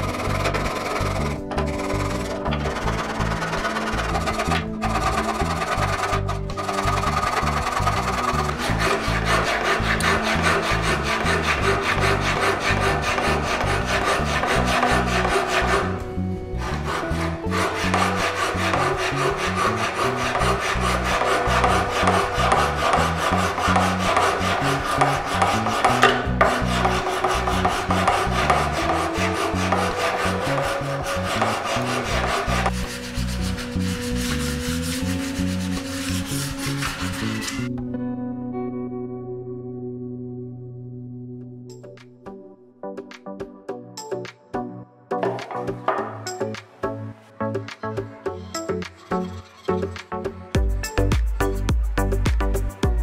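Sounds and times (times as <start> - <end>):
sandpaper rubbing on wood: 0.0 - 16.0, 16.6 - 37.7.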